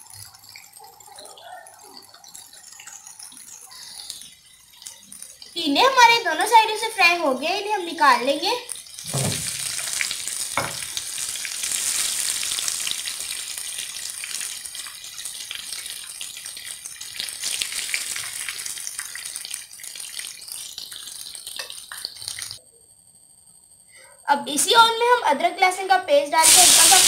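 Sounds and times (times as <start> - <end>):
gourds sizzling in oil: 0.0 - 22.6, 25.7 - 27.0
utensil knocking against pan: 10.6 - 10.8.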